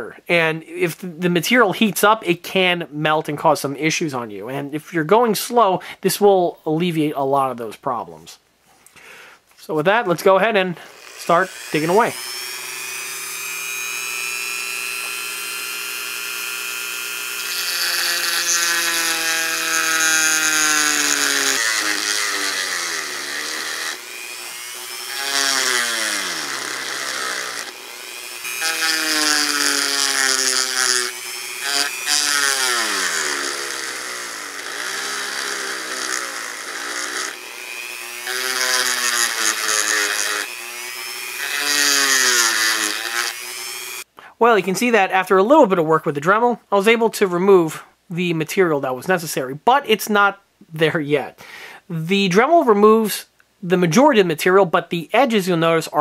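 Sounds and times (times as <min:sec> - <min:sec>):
rotary tool whining grinding metal: 0:10.8 - 0:44.1.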